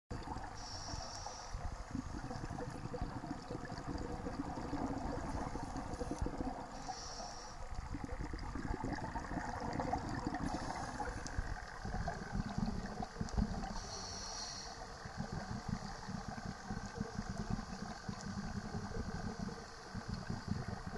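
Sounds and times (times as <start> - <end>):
regulator inhalation hiss: 0.6 - 2.0, 5.5 - 7.8, 10.4 - 11.4, 13.7 - 17.2
bubbly rumbling exhalation: 1.6 - 6.8, 7.8 - 13.8.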